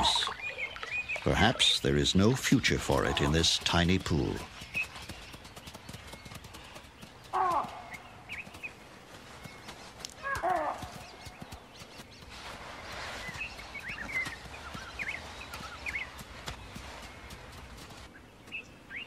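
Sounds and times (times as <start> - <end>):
small bird chirps: 10.8 - 19.0.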